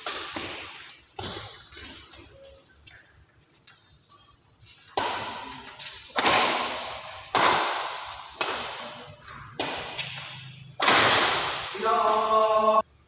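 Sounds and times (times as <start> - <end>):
badminton rackets hitting shuttlecock: 0.0 - 1.8, 4.8 - 12.7.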